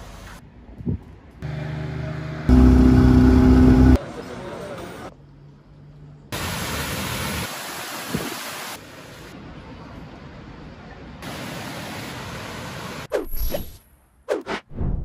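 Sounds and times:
rushing water: 6.4 - 9.4, 11.2 - 13.1.

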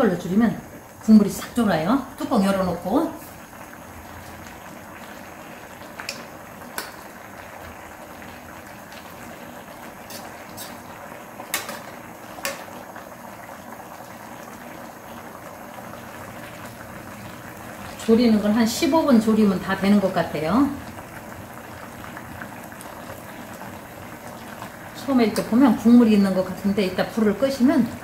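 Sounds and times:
sauce bubbling at a boil: 0.0 - 28.0
metal ladle clicking on pan: 6.0 - 7.0, 11.5 - 12.7.

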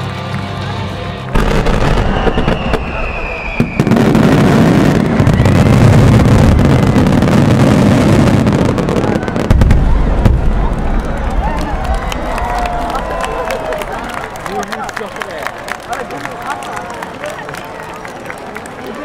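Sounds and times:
fireworks bursting and crackling: 1.3 - 14.6.

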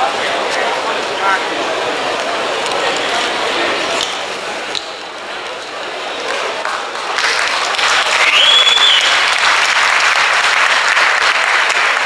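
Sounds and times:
crowd applauding: 6.2 - 12.0
whistle: 8.2 - 9.2.

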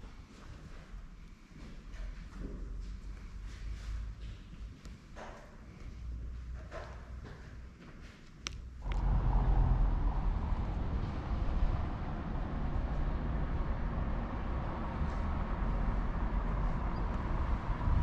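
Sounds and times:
street ambience low rumble: 0.0 - 18.0.

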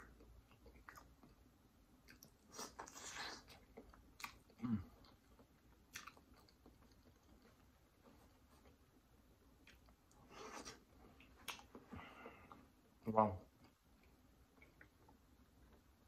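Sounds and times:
chewing: 0.0 - 1.4, 2.0 - 8.9, 9.6 - 12.7
low throat sound: 4.6 - 5.0.

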